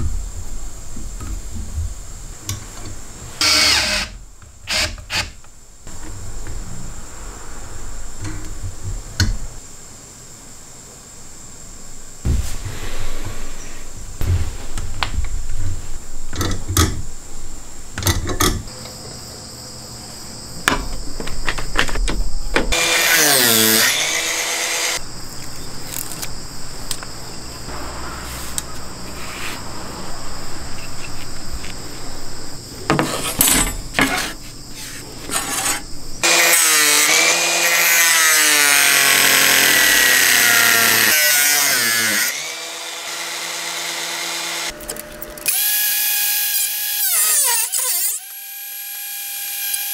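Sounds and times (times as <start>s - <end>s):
angle grinder cutting wood: 3.4s - 5.3s, 22.7s - 25.0s, 34.9s - 44.7s, 45.4s - 49.9s.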